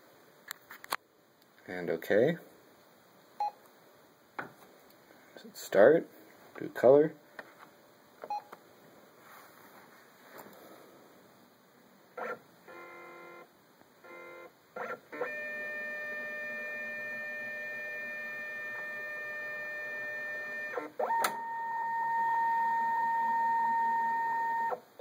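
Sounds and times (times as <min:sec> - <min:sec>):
scanner motor whining: 0:14.1 - 0:24.8.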